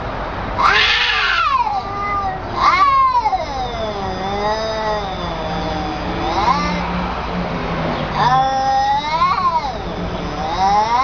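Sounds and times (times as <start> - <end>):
cats yowling: 0.6 - 11.0.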